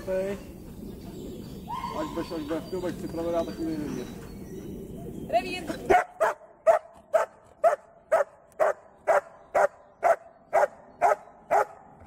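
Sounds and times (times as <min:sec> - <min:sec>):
dog barking: 0:05.9 - 0:11.9.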